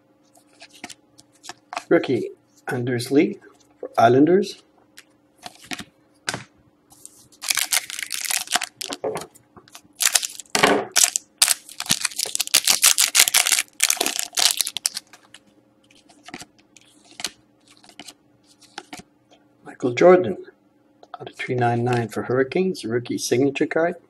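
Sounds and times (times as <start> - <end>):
foil wrapper crinkling: 7.0 - 9.0, 9.7 - 19.0.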